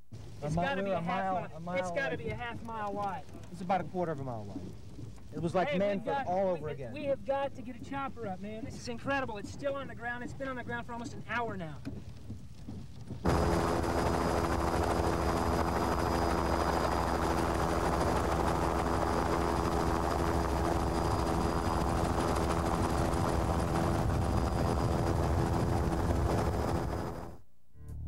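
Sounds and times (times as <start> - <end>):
helicopter rotor drone: 13.1 - 27.4.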